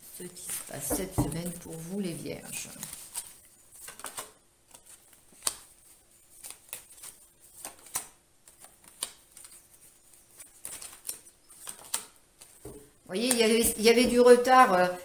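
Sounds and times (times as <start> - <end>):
cards snapping and flicking: 5.4 - 5.7, 6.3 - 9.6, 10.4 - 12.6.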